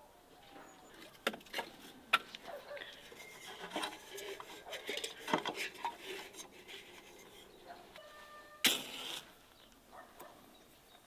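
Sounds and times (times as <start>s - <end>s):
jug clinking on wood: 2.9s - 7.3s
light knocks and rubbing: 3.0s - 7.5s.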